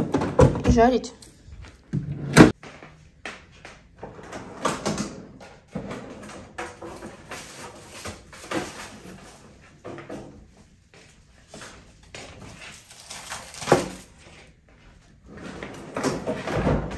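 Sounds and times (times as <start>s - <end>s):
kitchen items knocking and clattering: 0.0s - 1.0s, 4.0s - 10.4s, 15.8s - 16.9s.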